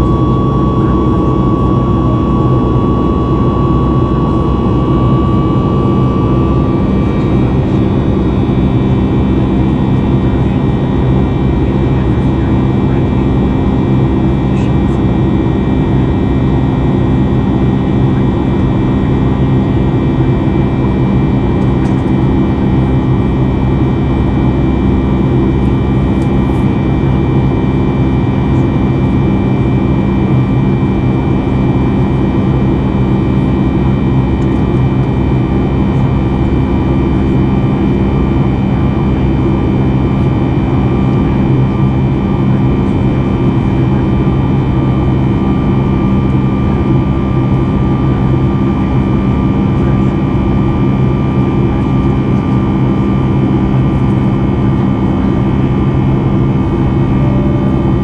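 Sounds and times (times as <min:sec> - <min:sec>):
whining tones: 0:00.0 - 0:09.5
jet engine drone: 0:00.0 - 0:58.0.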